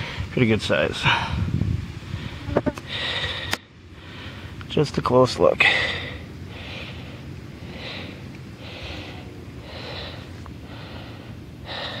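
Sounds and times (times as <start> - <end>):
person breathing close to microphone: 2.1 - 4.6, 5.6 - 12.0.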